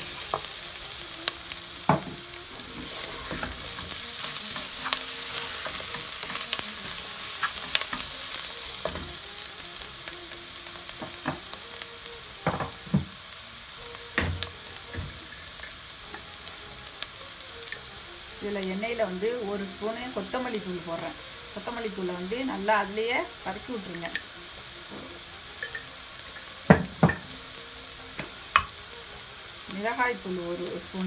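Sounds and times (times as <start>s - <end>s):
onions sizzling in a pot: 0.0s - 31.0s
wooden spoon scraping a pan: 2.5s - 9.3s.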